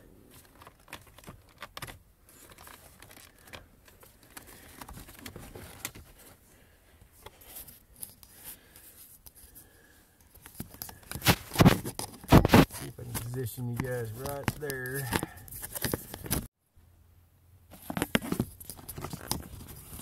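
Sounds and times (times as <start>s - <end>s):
hand handling phone rustling: 0.2s - 16.5s, 17.7s - 20.0s.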